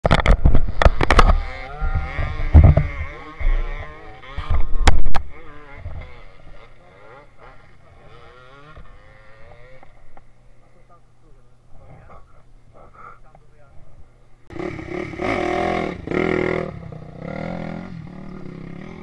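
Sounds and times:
knocks and buffeting on microphone: 0:00.1 - 0:03.6
dirt bike engines revving: 0:00.1 - 0:19.0.

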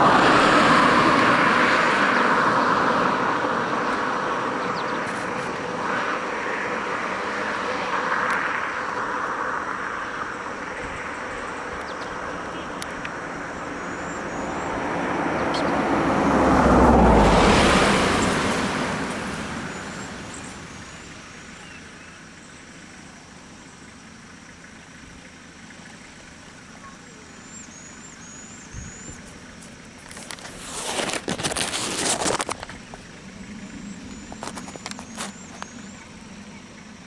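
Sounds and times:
van driving past: 0:00.0 - 0:37.0
bird chirping: 0:10.0 - 0:15.9, 0:23.7 - 0:29.6, 0:32.7 - 0:37.0.

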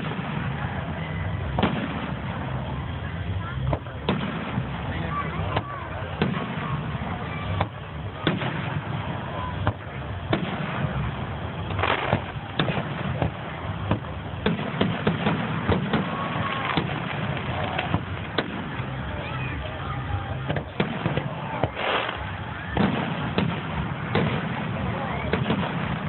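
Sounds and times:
firework bangs: 0:00.0 - 0:26.0.

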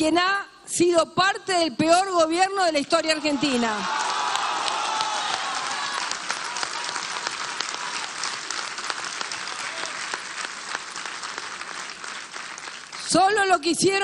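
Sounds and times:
crowd applauding: 0:02.9 - 0:13.2.

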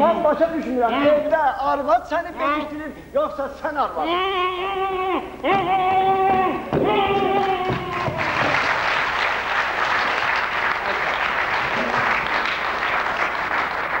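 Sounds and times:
audience applauding: 0:07.1 - 0:14.0.

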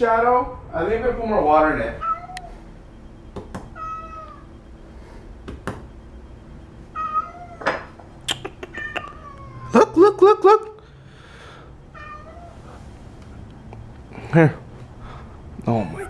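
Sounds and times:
cat meowing: 0:02.0 - 0:02.5, 0:03.7 - 0:04.5, 0:06.9 - 0:07.8, 0:08.6 - 0:09.8, 0:11.9 - 0:12.6.

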